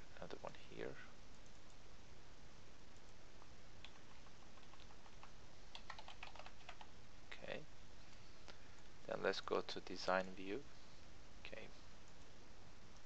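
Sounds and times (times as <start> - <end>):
faint steady hiss: 0.0 - 13.0
computer keyboard typing: 3.8 - 6.9.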